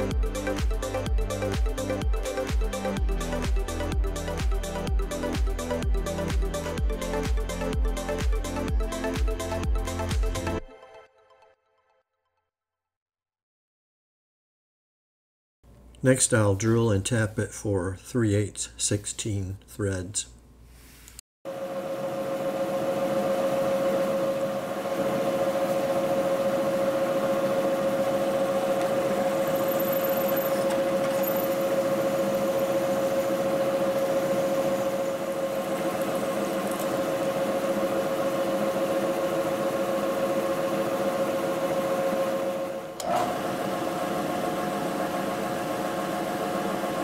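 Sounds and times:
milling machine spindle whine: 0:21.8 - 0:43.4.

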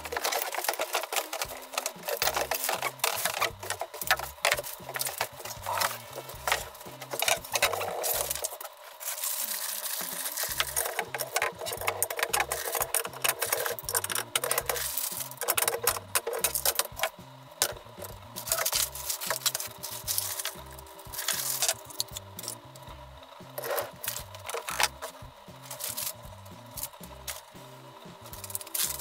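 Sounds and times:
background music with beat: 0:00.0 - 0:08.6, 0:09.5 - 0:29.0
plastic rustling and crinkling: 0:00.0 - 0:22.6, 0:23.6 - 0:27.5, 0:28.2 - 0:29.0.

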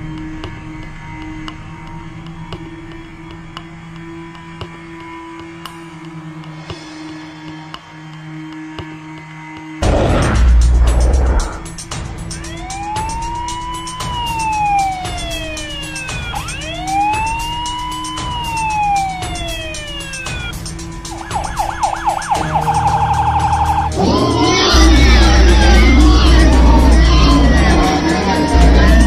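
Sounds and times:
toy electronic siren: 0:12.4 - 0:29.0.

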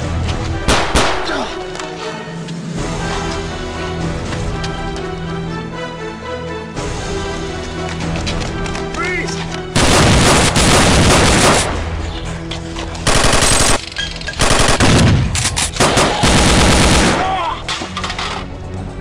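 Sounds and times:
background music: 0:00.0 - 0:19.0
machine-gun fire: 0:09.8 - 0:11.8, 0:13.1 - 0:13.8, 0:14.4 - 0:17.4.

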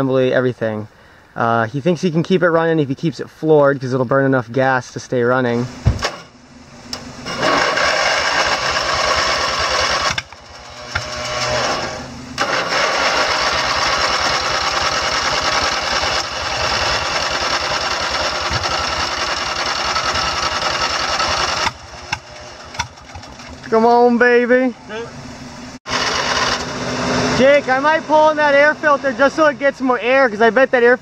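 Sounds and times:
mower engine running rough: 0:06.8 - 0:24.0, 0:25.1 - 0:31.0.

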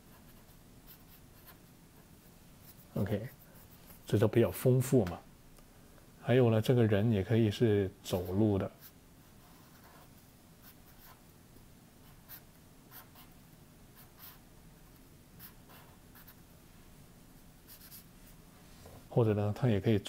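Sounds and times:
marker scratching on paper: 0:00.1 - 0:03.7, 0:08.1 - 0:11.2, 0:12.0 - 0:13.4, 0:14.0 - 0:14.4, 0:15.4 - 0:16.4, 0:17.7 - 0:18.1.

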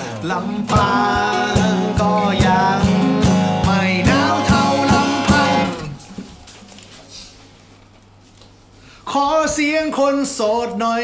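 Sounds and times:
man singing: 0:00.0 - 0:06.0, 0:09.0 - 0:11.0
strummed acoustic guitars: 0:00.0 - 0:06.7.

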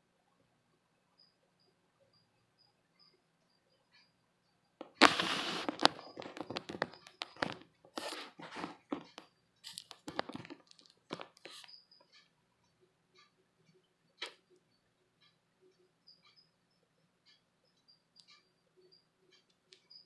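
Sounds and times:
phone handling rustling and scraping: 0:04.8 - 0:11.7.

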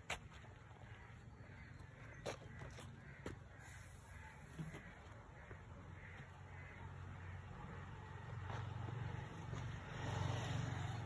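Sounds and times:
birds calling: 0:00.0 - 0:08.0.

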